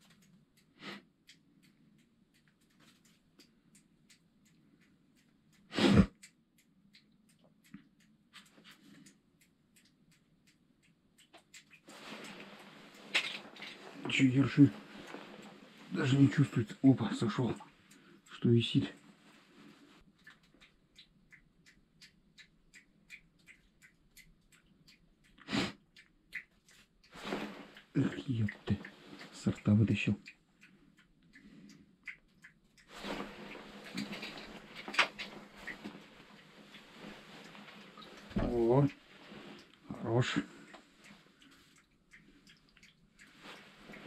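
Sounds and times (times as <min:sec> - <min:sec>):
faint ticks: 0:00.0 - 0:44.0
short sniff: 0:00.8 - 0:01.0, 0:05.7 - 0:06.1, 0:25.4 - 0:25.8.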